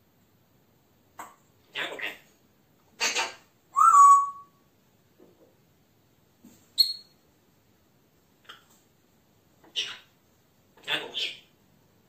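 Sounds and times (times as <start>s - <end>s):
parrot raspy call: 3.0s - 4.5s
parrot high chirp: 3.0s - 4.6s, 6.8s - 7.2s
parrot whistling: 3.8s - 4.6s.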